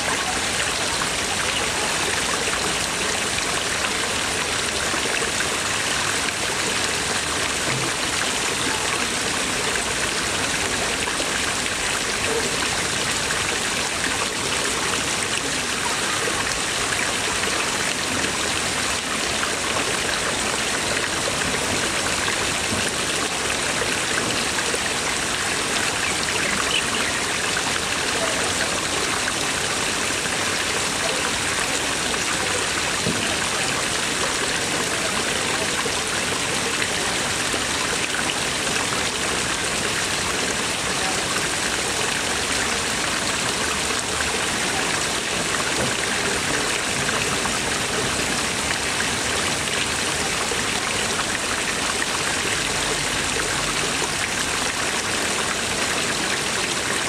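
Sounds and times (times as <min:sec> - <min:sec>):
water jets splashing into pond: 0:00.0 - 0:57.0.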